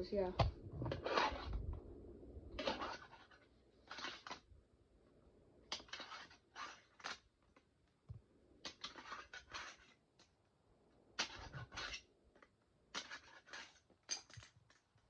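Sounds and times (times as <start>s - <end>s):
plastic fingerboard scraping: 0.4s - 1.9s, 2.5s - 4.5s, 5.7s - 7.6s, 8.6s - 10.3s, 11.2s - 12.1s, 12.9s - 14.6s.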